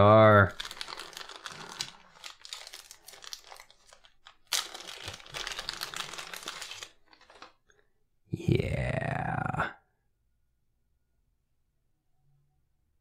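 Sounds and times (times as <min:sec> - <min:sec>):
plastic bag crinkling: 0:00.2 - 0:07.7
wordless vocal sound: 0:08.3 - 0:09.8.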